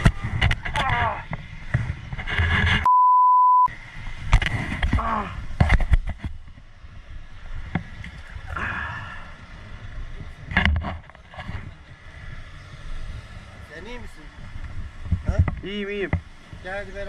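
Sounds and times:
rustling near microphone: 0.0 - 2.9
steady beep tone: 2.8 - 3.7.

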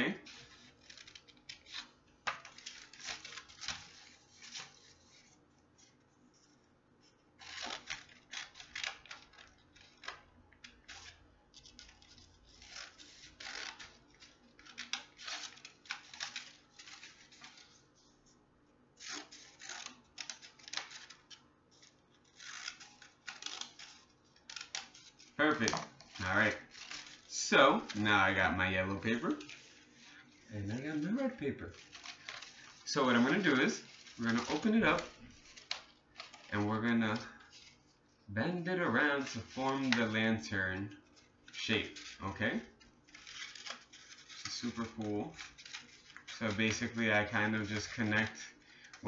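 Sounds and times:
scissors snipping paper: 0.0 - 5.2, 7.4 - 17.7, 19.0 - 28.2, 29.1 - 37.8, 41.0 - 49.0.

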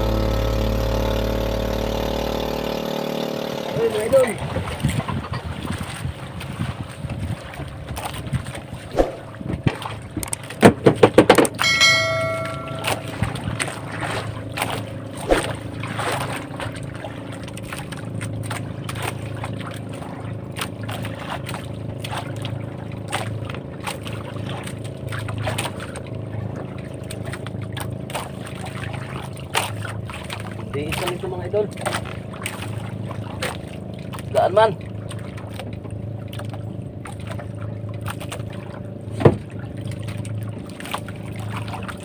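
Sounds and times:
boat engine running: 0.0 - 42.0
metallic ring: 11.6 - 13.9.

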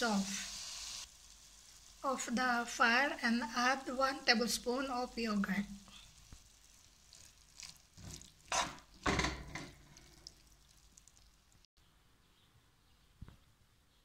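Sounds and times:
spoon scraping in a pan: 7.1 - 10.4.

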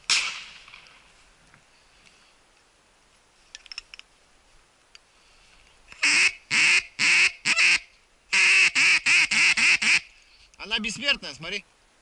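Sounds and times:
faint clicks: 4.8 - 6.0
loud harsh duck quacks: 6.0 - 10.1.

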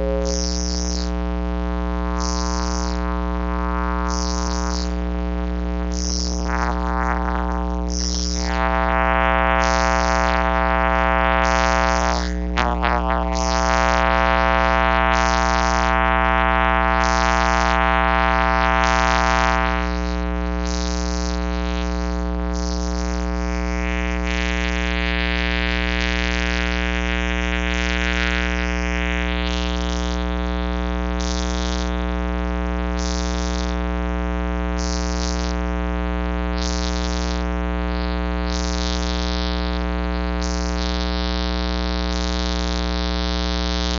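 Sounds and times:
synthesizer chords: 11.7 - 14.0.

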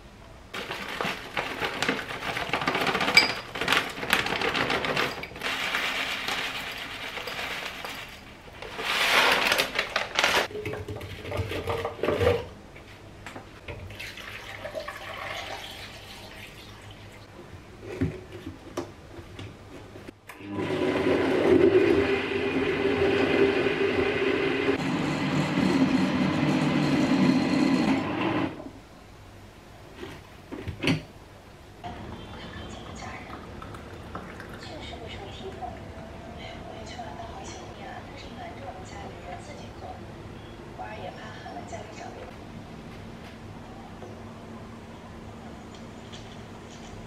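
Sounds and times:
kitchen clatter: 0.6 - 12.5
blender running: 20.3 - 28.6
water running: 31.9 - 35.8.

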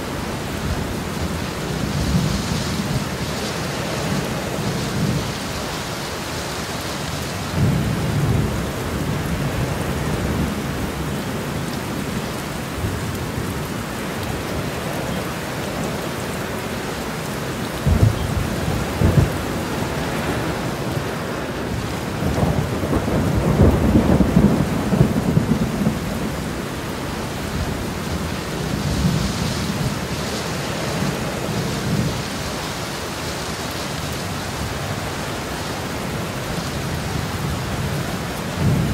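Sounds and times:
heavy rain: 0.0 - 38.9
thunder cracks and rumbles: 17.8 - 21.0, 21.7 - 26.4
rolling thunder rumble: 17.8 - 30.3.

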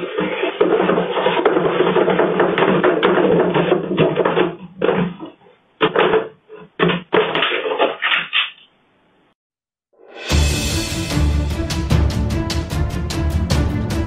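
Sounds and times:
exercise wheel rumbling and rattling: 0.0 - 6.2.

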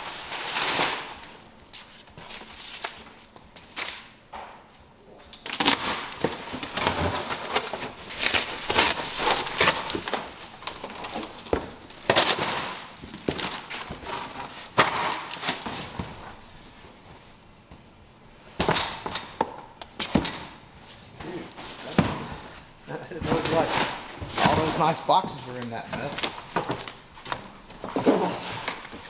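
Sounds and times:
cardboard tearing: 5.4 - 15.8, 27.9 - 29.0.

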